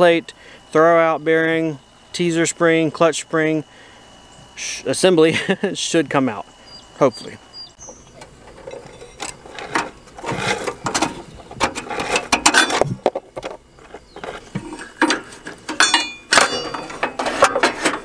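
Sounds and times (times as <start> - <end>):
metal tools clinking and scraping: 8.1 - 18.0.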